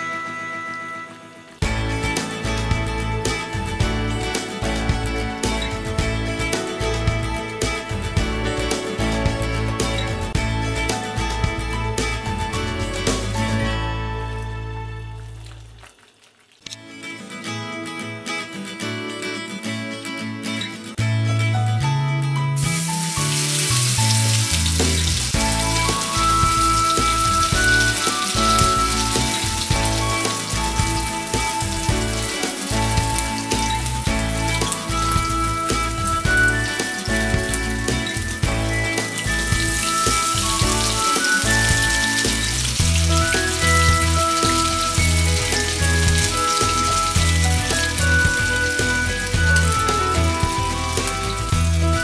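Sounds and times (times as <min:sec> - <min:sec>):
background music: 0:00.0 - 0:15.6, 0:16.7 - 0:52.0
batter sizzling in oil: 0:01.6 - 0:16.8, 0:22.6 - 0:52.0.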